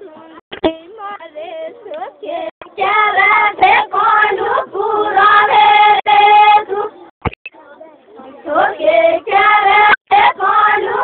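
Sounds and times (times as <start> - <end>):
girls and women singing: 1.5 - 7.0, 8.4 - 11.0.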